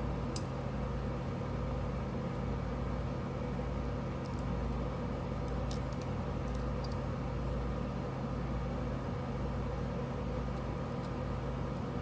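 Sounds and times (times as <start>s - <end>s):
steady low hum: 0.0s - 12.0s
faint clicks of spinning top parts: 4.2s - 4.5s, 5.4s - 7.0s.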